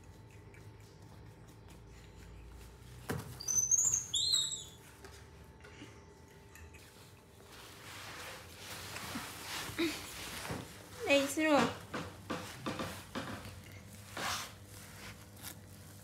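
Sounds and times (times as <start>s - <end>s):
baby monkey squealing: 3.4s - 4.8s.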